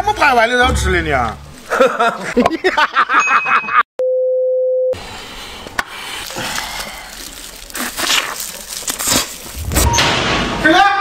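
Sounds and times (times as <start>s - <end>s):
handling sounds: 5.7s - 9.9s.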